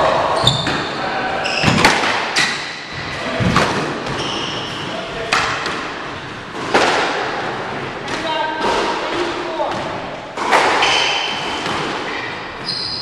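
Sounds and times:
racquet striking ball: 1.5s - 13.0s
ball hitting walls: 1.6s - 4.5s, 5.2s - 12.7s
shoes squeaking on hardwood: 12.1s - 13.0s.

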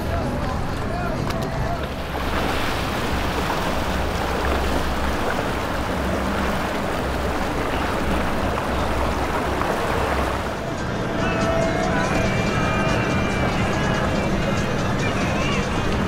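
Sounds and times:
boat engines rumbling: 0.0s - 16.0s
water rushing: 0.0s - 16.0s
wind rushing: 1.9s - 10.6s.

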